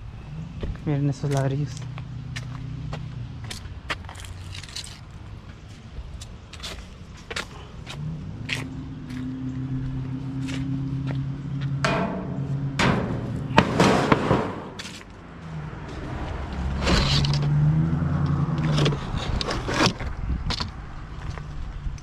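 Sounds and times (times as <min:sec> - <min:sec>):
engine hum: 0:00.0 - 0:22.0
trash cart lid clattering open: 0:11.8 - 0:15.0.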